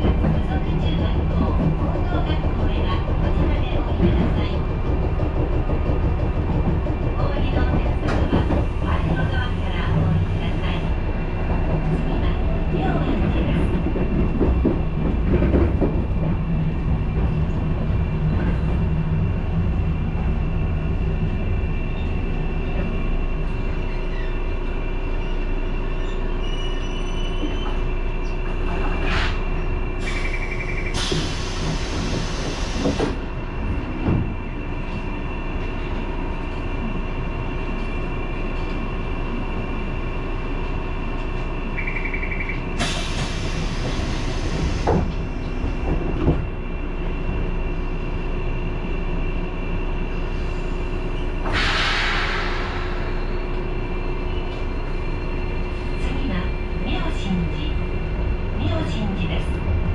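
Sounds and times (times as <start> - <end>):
railcar wheel and motor noise: 0.0 - 59.9
faint wheel squeal: 25.2 - 28.4.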